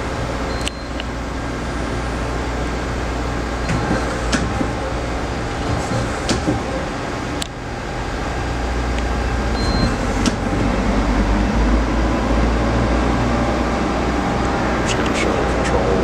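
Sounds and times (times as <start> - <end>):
high beep: 0.5 - 1.0, 9.6 - 10.1.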